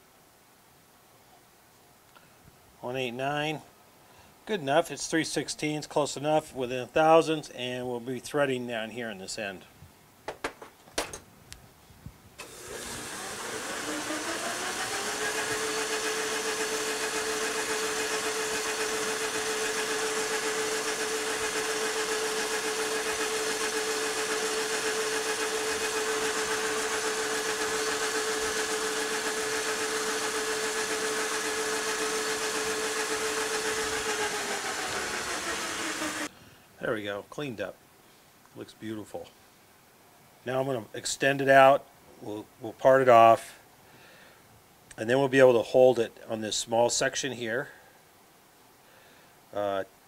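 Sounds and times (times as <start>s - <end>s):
metal lathe spinning up and whining: 12.4s - 36.3s.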